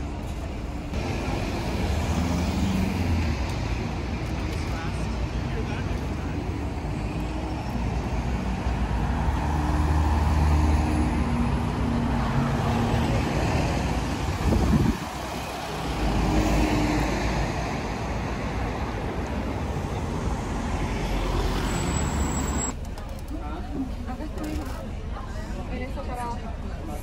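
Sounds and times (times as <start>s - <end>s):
vehicles driving past: 0.0s - 27.0s.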